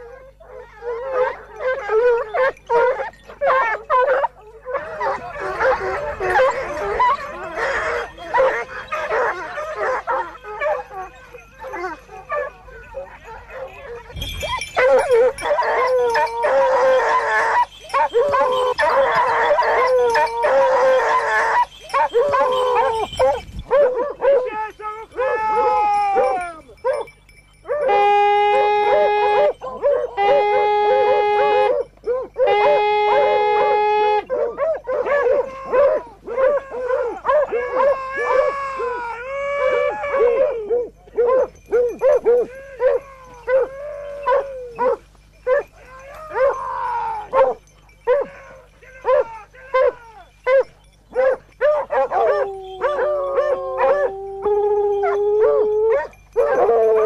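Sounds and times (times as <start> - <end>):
hounds howling: 0.0 - 57.0
hounds yelping and barking: 0.0 - 57.0.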